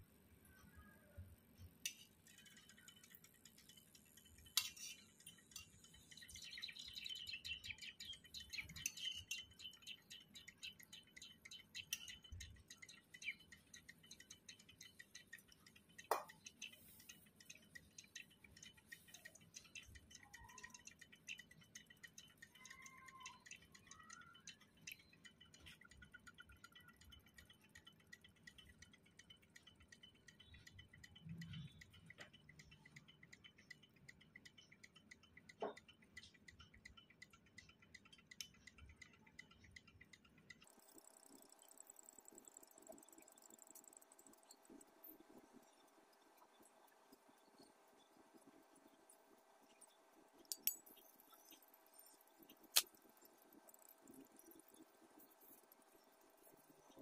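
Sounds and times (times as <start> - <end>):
clay sizzling and crackling in water: 1.8 - 6.7, 40.5 - 57.0.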